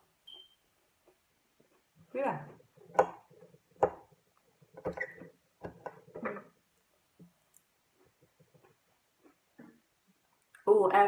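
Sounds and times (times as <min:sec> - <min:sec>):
chewing noises: 0:07.5 - 0:10.6.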